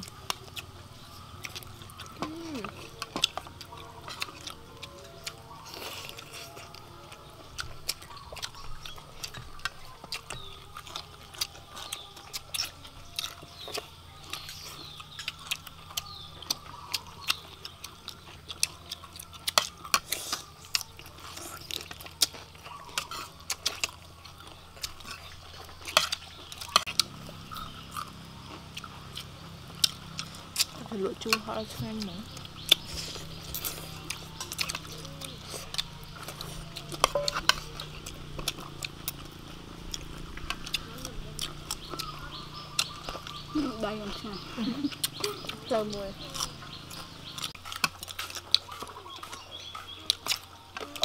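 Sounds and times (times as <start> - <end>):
people chewing and lip smacking: 0.0 - 51.0
spoons clicking on ceramic plates: 36.9 - 38.0.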